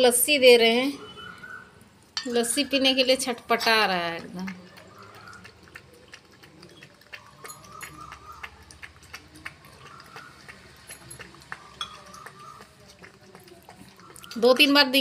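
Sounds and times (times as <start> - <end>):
puppy lapping from steel bowl: 3.4 - 15.0.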